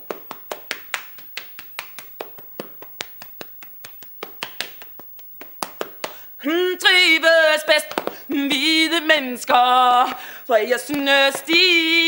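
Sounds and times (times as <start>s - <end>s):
hands slapping body: 0.0s - 6.2s, 7.9s - 8.2s.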